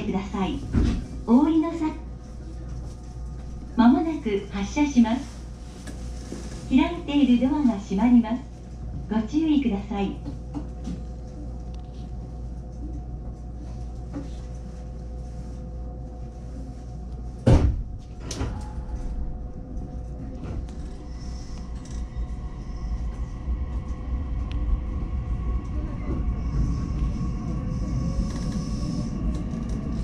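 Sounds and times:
train humming at standstill: 0.0s - 30.0s
train running noise: 0.0s - 30.0s
train doors shutting with thud: 0.6s - 1.2s, 17.4s - 19.2s.

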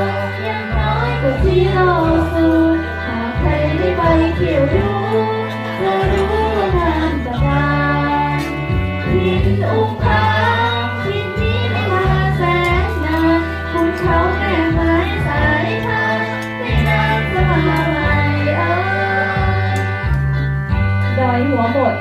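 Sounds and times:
song with singing voice: 0.0s - 22.0s.

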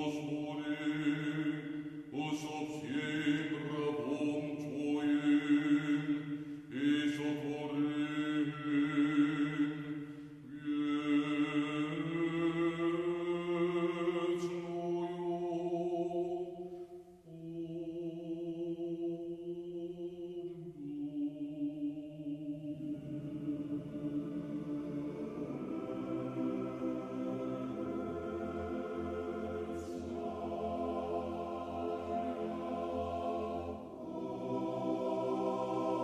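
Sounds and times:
voices chanting long notes: 16.5s - 36.0s.

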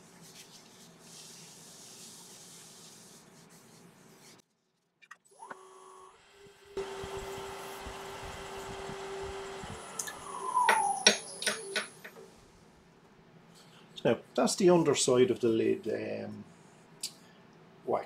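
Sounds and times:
cloth rubbing wax on wood: 0.1s - 4.5s
wood lathe humming: 6.8s - 11.6s.

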